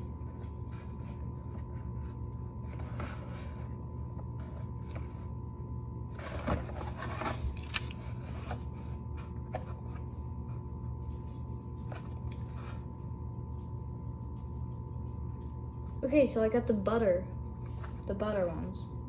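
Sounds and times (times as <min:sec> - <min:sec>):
cardboard packaging rustling: 0:06.1 - 0:10.1.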